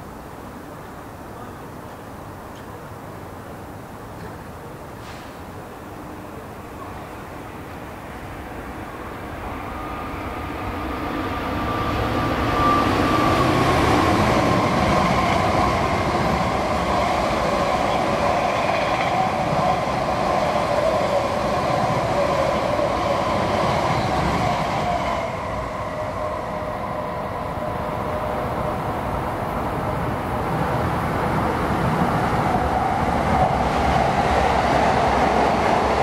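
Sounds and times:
train passing with loud rushing: 0:02.8 - 0:36.0.

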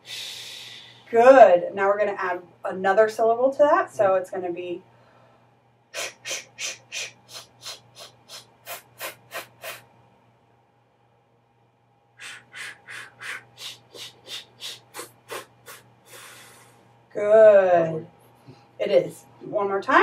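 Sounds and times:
short hissed consonant pulses: 0:05.9 - 0:10.0, 0:12.2 - 0:16.8.

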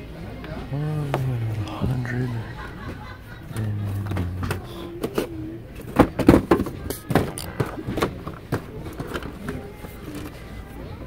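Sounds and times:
plastic toy packages clacking: 0:03.8 - 0:10.6.

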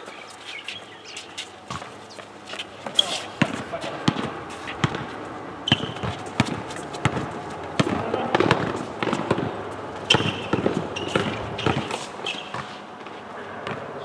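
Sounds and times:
shoes squeaking: 0:00.0 - 0:14.0
basketball bouncing on hard court: 0:02.9 - 0:05.1, 0:05.7 - 0:12.8, 0:13.6 - 0:13.9.

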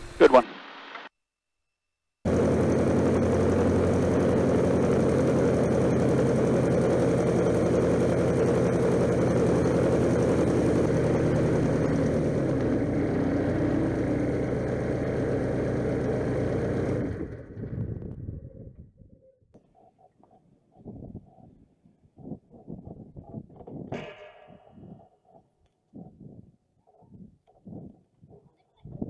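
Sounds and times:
propeller engine idling: 0:02.3 - 0:17.8.

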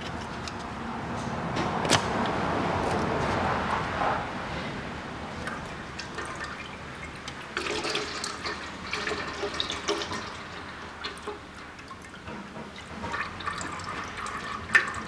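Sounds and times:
fluid splashing into metal basin: 0:05.4 - 0:12.2.

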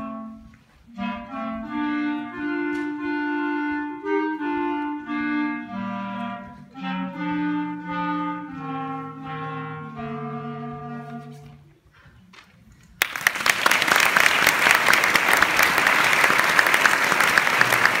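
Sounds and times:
audience applause: 0:13.0 - 0:18.0.

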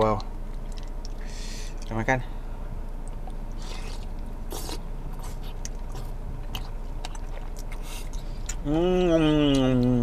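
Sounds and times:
low background hum: 0:00.0 - 0:10.0
person chewing food: 0:00.2 - 0:01.9, 0:02.9 - 0:08.7, 0:09.3 - 0:10.0.

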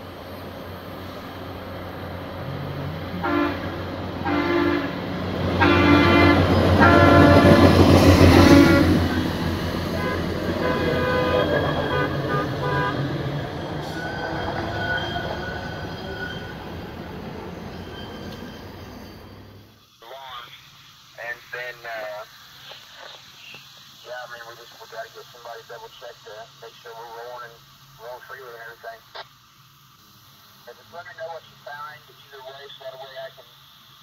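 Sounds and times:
engine and wheels on rail: 0:00.0 - 0:19.8
machine horn blasts: 0:03.2 - 0:05.0, 0:05.6 - 0:09.3, 0:09.9 - 0:13.1.

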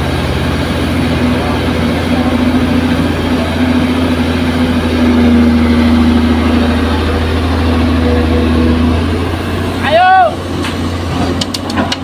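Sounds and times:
diesel engines droning: 0:00.0 - 0:12.0.

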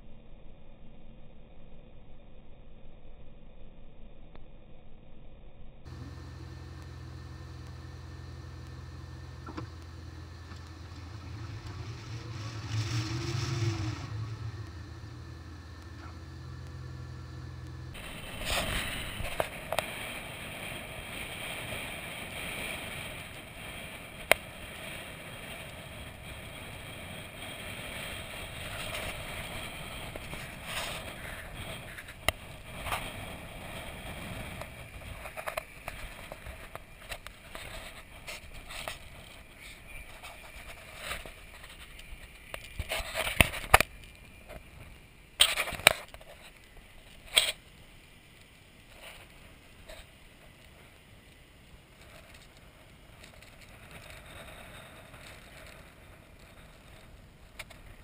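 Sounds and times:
engine and tyre noise: 0:05.8 - 0:58.0.

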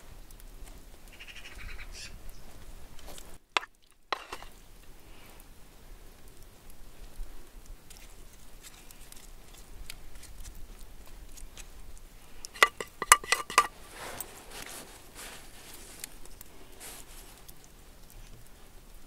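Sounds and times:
wood fire crackling: 0:00.0 - 0:01.2, 0:02.2 - 0:19.0
spoon scraping through filling: 0:04.1 - 0:04.5, 0:12.4 - 0:16.1
wooden spoon clinking on dish: 0:04.2 - 0:04.5, 0:12.6 - 0:13.8.

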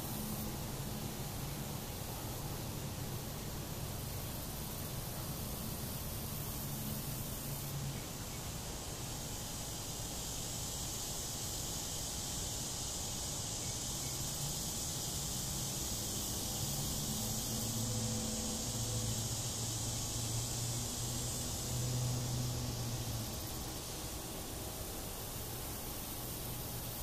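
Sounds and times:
high insect drone: 0:00.0 - 0:27.0
outdoor hiss: 0:00.0 - 0:27.0
low fly buzzing: 0:13.6 - 0:27.0.

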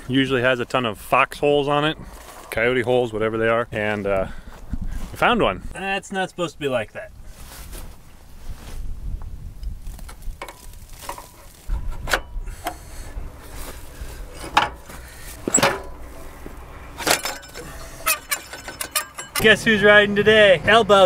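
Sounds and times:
metal tool scraping mud: 0:17.0 - 0:19.5.

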